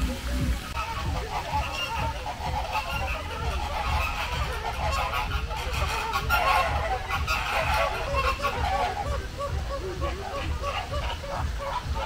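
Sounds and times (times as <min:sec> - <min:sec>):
goose-like honks of birds: 0:00.6 - 0:12.0.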